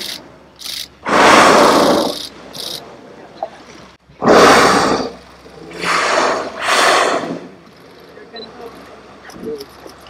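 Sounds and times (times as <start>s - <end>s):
whale blowing: 1.0s - 2.7s, 4.2s - 7.6s.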